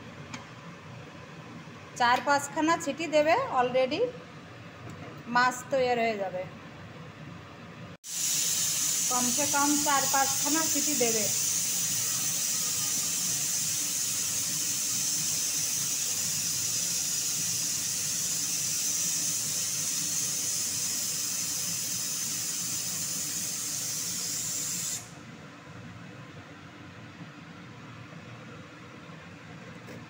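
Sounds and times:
pressure cooker hissing: 0:08.0 - 0:25.2.

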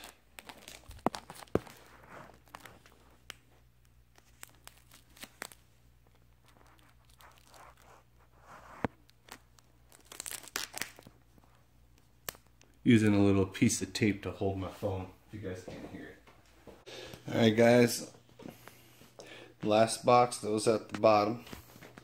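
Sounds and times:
adhesive tape tearing: 0:09.2 - 0:11.1.

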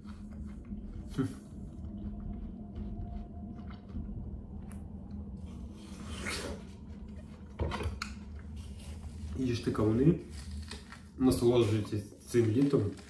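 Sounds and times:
watermelon chewing crunches: 0:00.0 - 0:06.7.

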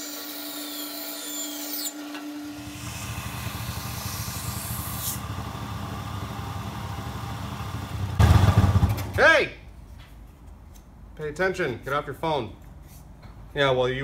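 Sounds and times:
bandsaw cutting wood: 0:00.0 - 0:06.0
belt sander grinding wood: 0:00.0 - 0:07.6.

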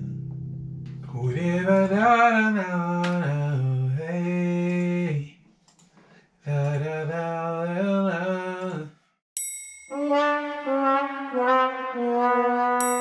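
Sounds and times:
bell-like ding: 0:09.4 - 0:10.1.

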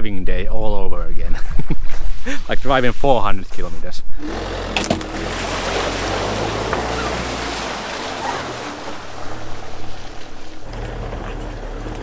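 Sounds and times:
van engine running: 0:04.1 - 0:09.7, 0:10.6 - 0:12.0
wheels splashing through puddle: 0:04.2 - 0:12.0.

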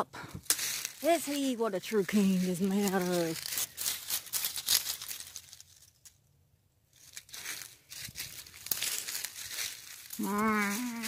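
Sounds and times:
footsteps crunching dry leaves: 0:00.4 - 0:06.0, 0:06.9 - 0:11.0
low wavering drawn-out call: 0:10.2 - 0:11.0.

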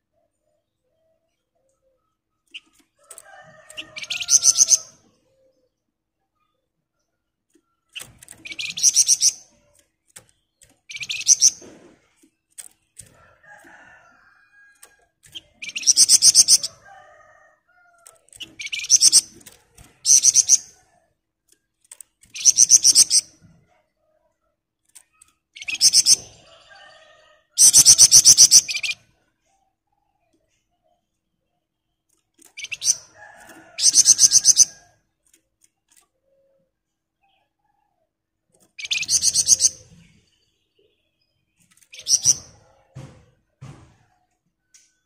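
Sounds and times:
bird chirps: 0:00.3 - 0:05.7, 0:06.4 - 0:11.8, 0:15.2 - 0:16.8, 0:18.3 - 0:20.9, 0:22.2 - 0:23.6, 0:25.0 - 0:29.1, 0:30.0 - 0:34.8, 0:38.7 - 0:43.2
songbird rattling trill: 0:03.7 - 0:04.9, 0:08.0 - 0:09.5, 0:10.6 - 0:11.6, 0:15.2 - 0:16.8, 0:18.2 - 0:20.7, 0:21.9 - 0:23.3, 0:32.5 - 0:34.8.

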